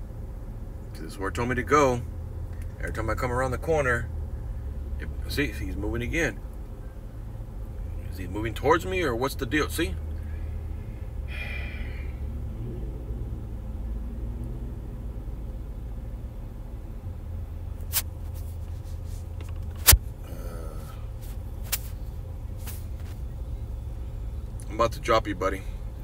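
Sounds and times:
car cabin engine rumble: 0:00.0 - 0:26.0.

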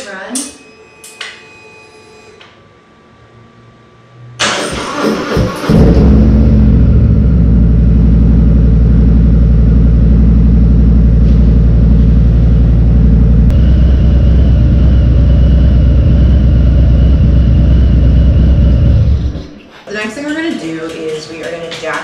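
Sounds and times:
motorcycle engine idling: 0:06.3 - 0:19.4.

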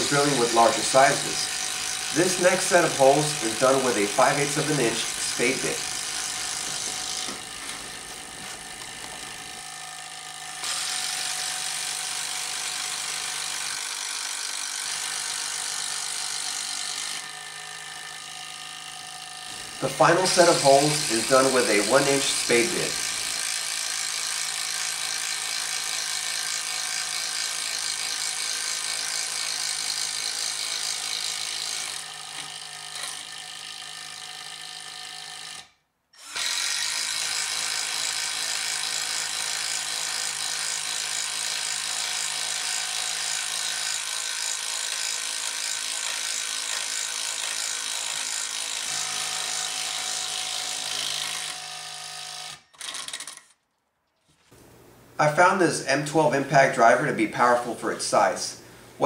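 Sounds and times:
impact driver running in wood: 0:00.0 - 0:53.6.

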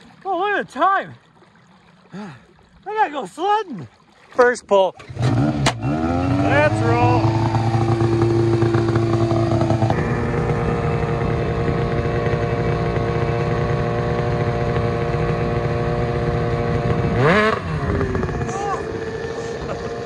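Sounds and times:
snowmobile engine idling: 0:05.3 - 0:20.0.

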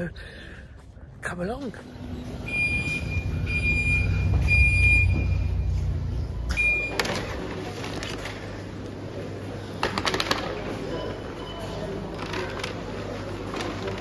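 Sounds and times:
engine running low rumble: 0:01.9 - 0:06.6
reversing alarm beeping: 0:02.1 - 0:07.2
plastic clatter: 0:09.8 - 0:10.6.

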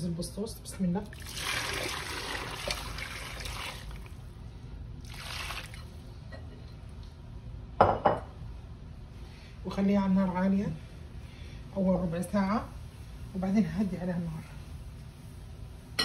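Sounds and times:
broth pouring and splashing: 0:01.1 - 0:04.3, 0:05.0 - 0:06.0.

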